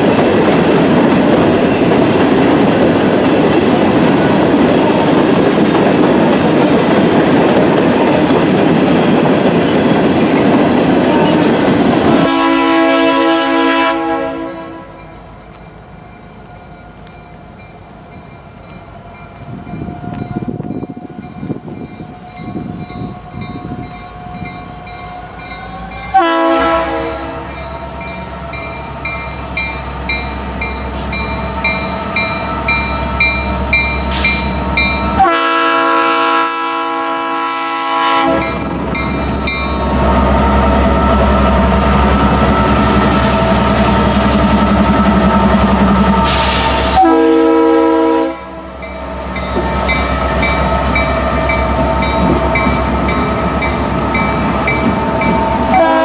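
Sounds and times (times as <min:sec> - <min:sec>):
locomotives rumbling past: 0:00.0 - 0:56.0
train air horn blasts: 0:11.1 - 0:15.1, 0:25.2 - 0:27.6, 0:35.2 - 0:38.6, 0:46.2 - 0:48.8, 0:55.6 - 0:56.0
crossing bell dinging: 0:14.8 - 0:26.2, 0:27.3 - 0:35.4, 0:38.3 - 0:45.8, 0:48.7 - 0:55.9.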